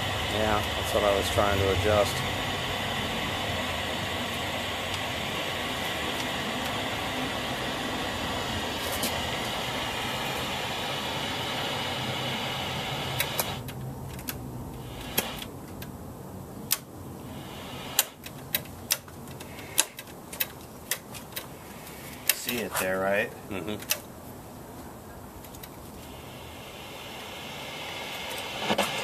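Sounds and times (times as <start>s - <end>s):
television static hiss: 0.0s - 13.7s, 14.8s - 29.0s
sharp irregular clicks: 13.1s - 16.0s, 16.6s - 16.9s, 17.9s - 21.5s, 22.1s - 22.8s.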